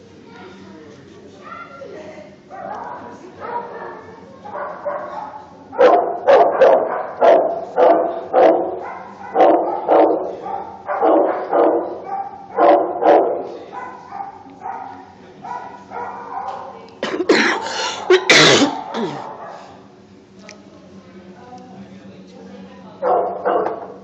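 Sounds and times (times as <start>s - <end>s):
dog barking: 2.5s - 16.8s, 18.1s - 19.7s, 23.0s - 24.0s.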